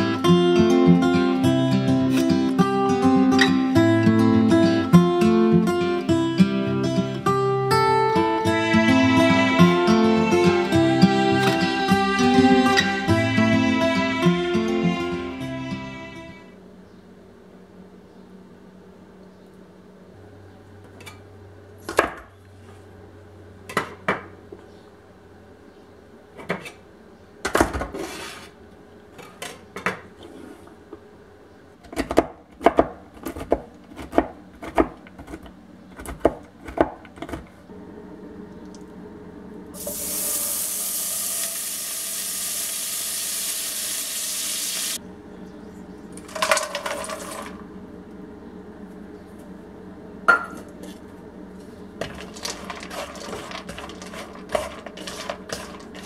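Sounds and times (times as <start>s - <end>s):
low hum: 37.7s - 40.5s
steady hiss: 39.8s - 45.0s
rustling: 52.0s - 56.0s.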